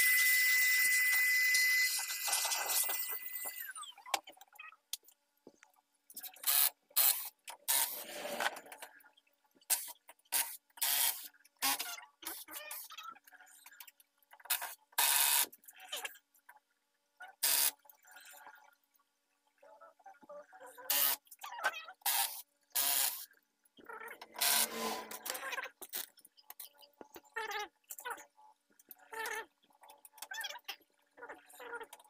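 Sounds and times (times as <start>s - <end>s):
hands scraping and rubbing: 7.8s - 8.9s, 24.2s - 25.6s.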